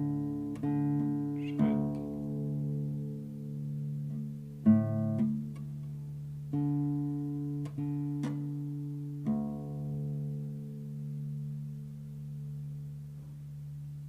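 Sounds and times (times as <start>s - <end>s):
classical guitar notes ringing: 0.0s - 14.0s
light taps on guitar strings: 5.1s - 6.0s, 7.6s - 8.6s.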